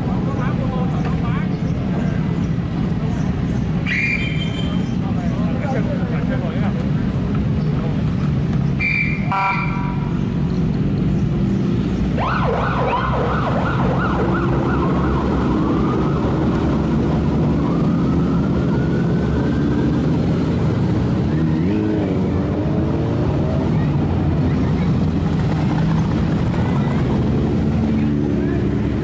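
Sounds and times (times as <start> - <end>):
motorcycle engines: 0.0 - 29.0
police car siren: 12.2 - 20.7.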